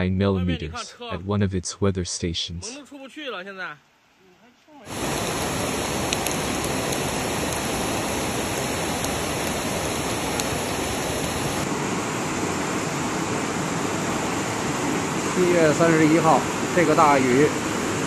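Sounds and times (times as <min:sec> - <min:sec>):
floodwater rushing: 0:04.8 - 0:18.0.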